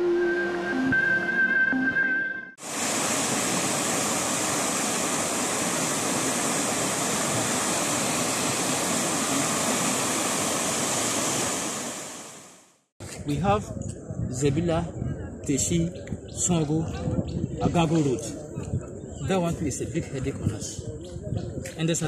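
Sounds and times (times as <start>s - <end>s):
floodwater rushing: 2.6s - 12.6s.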